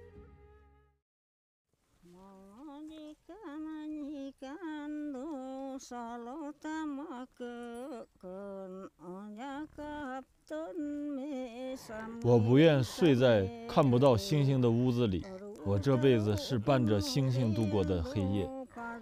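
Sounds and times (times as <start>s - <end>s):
person singing slow melody: 2.1s - 19.0s.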